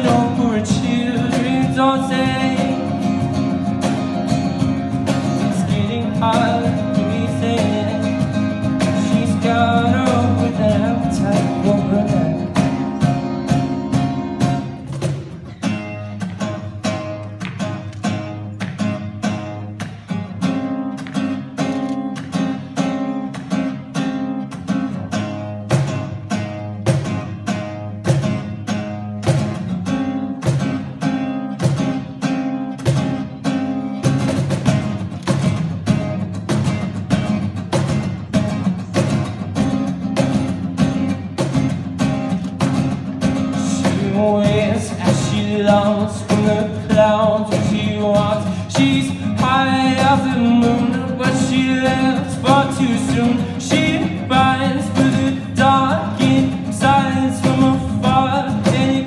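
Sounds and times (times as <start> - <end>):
acoustic guitar strumming: 0.0 - 59.0
cajon: 0.0 - 59.0.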